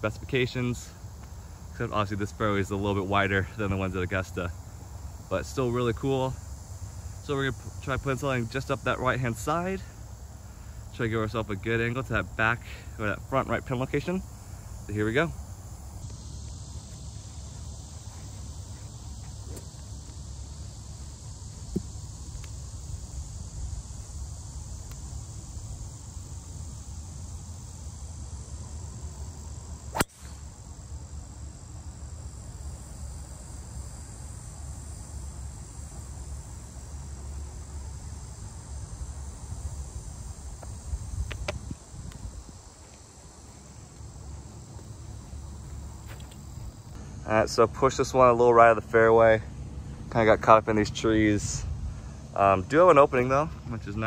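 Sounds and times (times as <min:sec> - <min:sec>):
high drone of insects: 0:00.0 - 0:54.0
golf ball struck by driver: 0:29.9 - 0:30.5.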